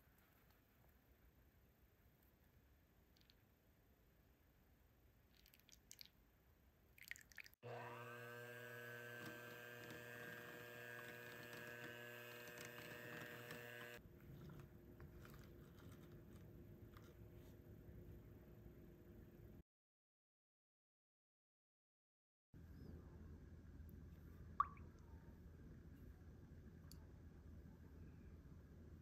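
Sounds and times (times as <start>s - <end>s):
small electric motor spinning: 7.6s - 14.0s.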